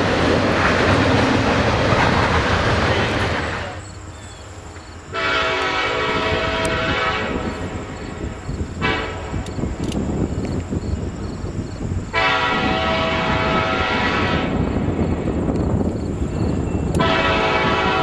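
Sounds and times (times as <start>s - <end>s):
freight train rumbling past: 0.0s - 18.0s
locomotive air horn: 5.1s - 7.9s, 8.8s - 9.4s, 12.1s - 14.7s, 17.0s - 18.0s.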